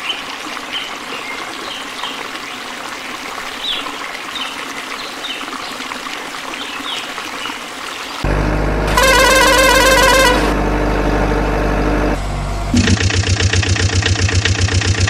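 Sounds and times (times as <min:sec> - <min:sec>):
water trickling: 0:00.0 - 0:08.2.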